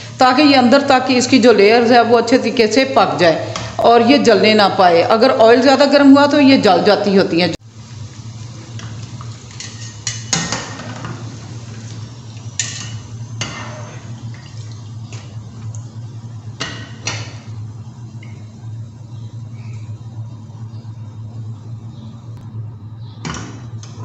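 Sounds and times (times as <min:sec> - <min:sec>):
low steady hum: 0:00.0 - 0:24.0
food deep-frying in oil: 0:07.6 - 0:18.8.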